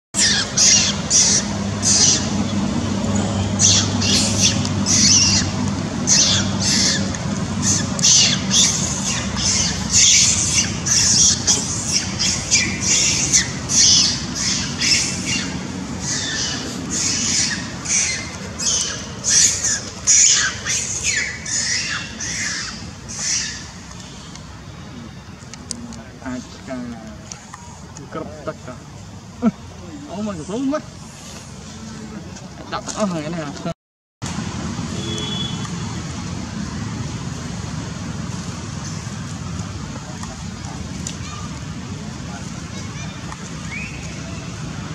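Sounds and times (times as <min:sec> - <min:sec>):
monkeys screeching: 0:00.2 - 0:23.8, 0:42.7 - 0:44.6
low rushing outdoor noise: 0:00.2 - 0:44.9.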